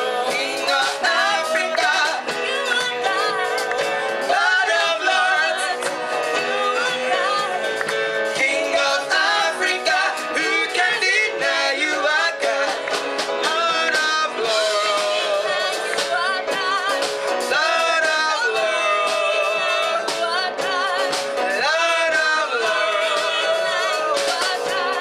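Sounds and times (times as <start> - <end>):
band with drums: 0.0 - 25.0
men singing gospel song: 0.0 - 25.0.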